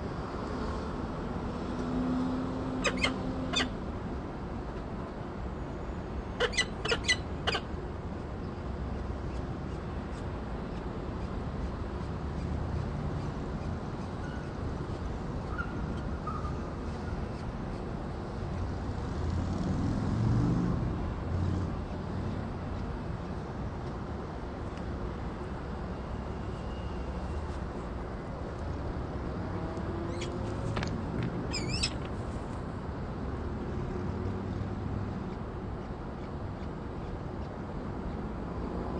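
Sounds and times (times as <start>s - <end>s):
falcon chirp: 2.8s - 3.7s, 6.4s - 7.6s, 30.1s - 30.3s, 31.5s - 32.0s.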